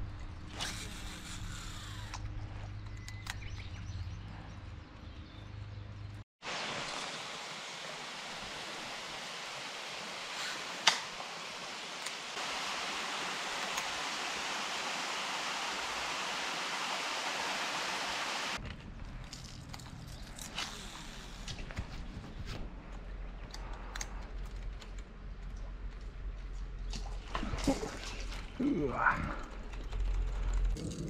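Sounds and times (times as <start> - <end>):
steady rushing hiss: 6.5 - 18.6.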